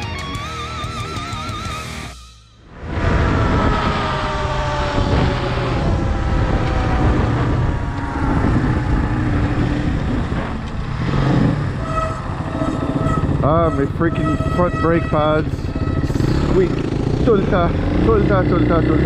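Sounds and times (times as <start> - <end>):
motorcycle engine rumbling: 2.1 - 19.0.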